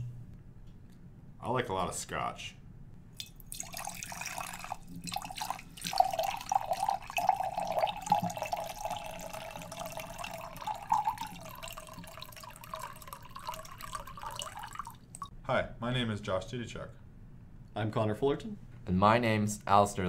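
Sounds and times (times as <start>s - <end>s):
liquid pouring into ceramic mug: 3.2s - 15.3s.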